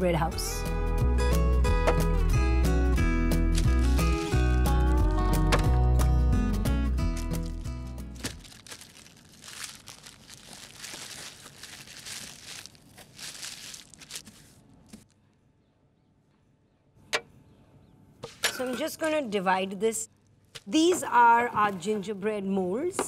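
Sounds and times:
background music: 0:00.0 - 0:08.6
cling film crinkling: 0:03.5 - 0:05.2, 0:07.0 - 0:15.2.

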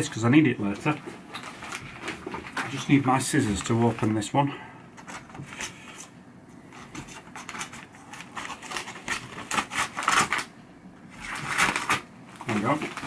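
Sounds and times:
paper rustling: 0:00.7 - 0:04.2, 0:05.0 - 0:06.1, 0:06.7 - 0:10.5, 0:11.1 - 0:13.0
scissors snipping paper: 0:07.0 - 0:10.4.

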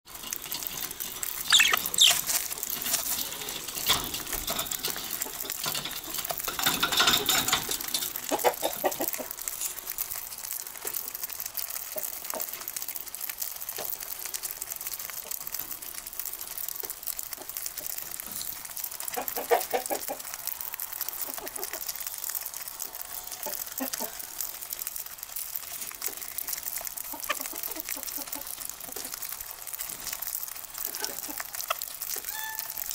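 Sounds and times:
birds cracking seeds: 0:00.1 - 0:32.9
bird chirps and chatter: 0:01.4 - 0:02.3, 0:32.2 - 0:32.9.

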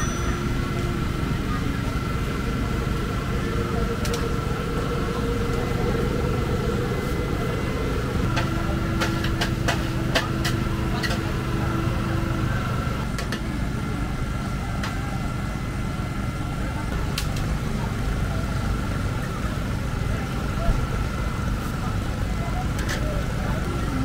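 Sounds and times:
constant high tone: 0:00.0 - 0:13.1
engine hum: 0:00.0 - 0:24.0.

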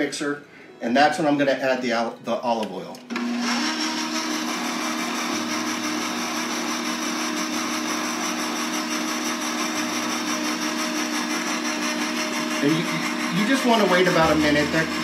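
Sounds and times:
stand mixer motor humming: 0:03.1 - 0:15.0.

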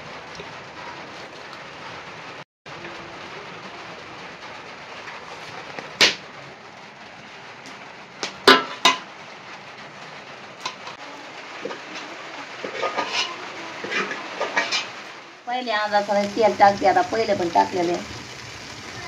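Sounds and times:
steel kitchenware clinking: 0:12.6 - 0:15.0.

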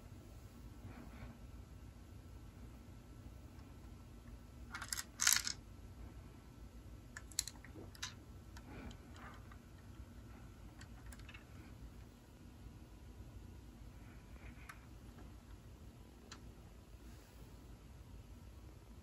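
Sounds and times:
plastic toy clicks and rattles: 0:04.7 - 0:05.6, 0:07.2 - 0:08.2, 0:10.8 - 0:11.4.

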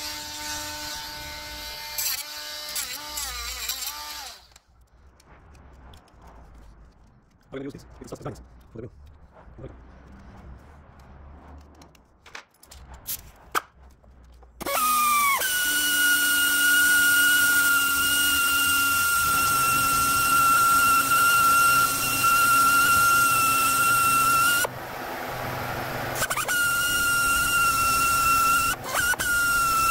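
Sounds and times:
pneumatic cut-off tool whining: 0:14.6 - 0:24.7, 0:26.2 - 0:29.9.

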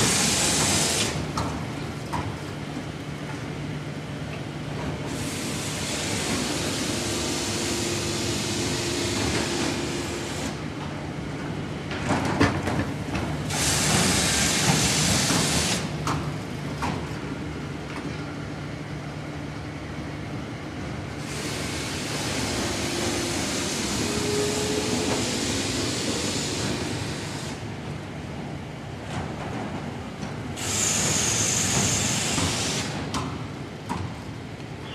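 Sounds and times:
loud machine hissing: 0:00.0 - 0:01.2, 0:05.1 - 0:10.7, 0:13.4 - 0:16.0, 0:21.2 - 0:27.7, 0:30.6 - 0:33.1.

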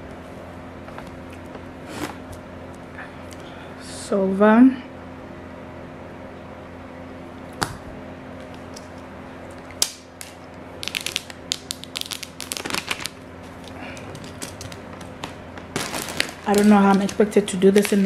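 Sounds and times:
plastic crinkling crackles: 0:09.6 - 0:18.0
shrink-wrap peeling: 0:09.6 - 0:18.0.

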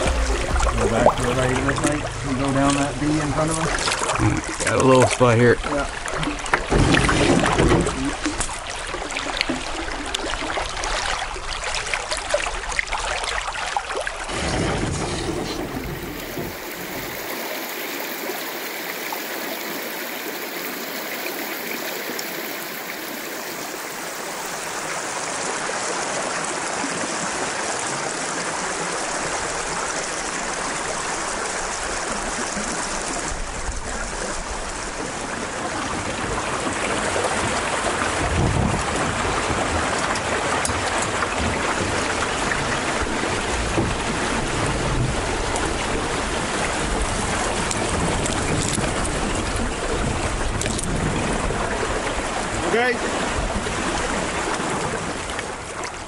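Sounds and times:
low knocks: 0:00.0 - 0:04.2, 0:14.5 - 0:17.3
river water rushing: 0:00.0 - 0:56.0.

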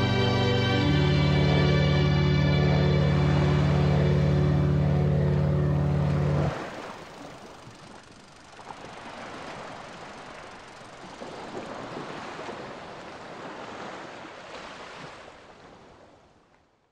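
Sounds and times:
ocean surf: 0:00.0 - 0:07.4, 0:11.6 - 0:16.0.

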